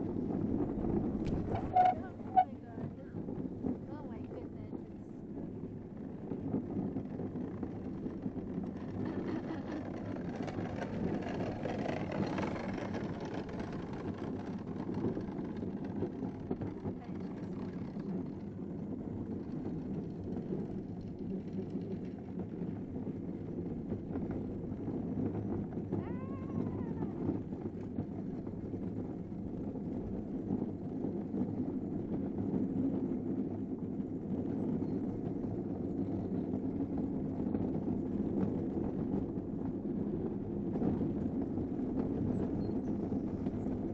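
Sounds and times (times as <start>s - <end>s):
kart wheels rumbling on concrete: 0.0s - 43.9s.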